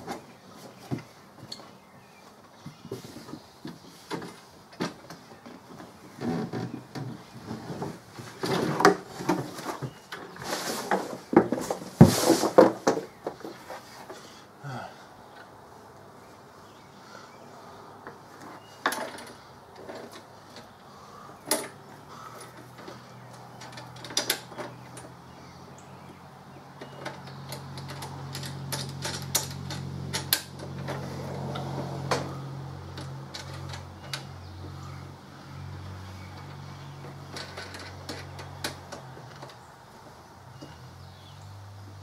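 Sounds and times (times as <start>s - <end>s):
clicks of mower parts: 21.4s - 25.2s, 36.3s - 39.6s.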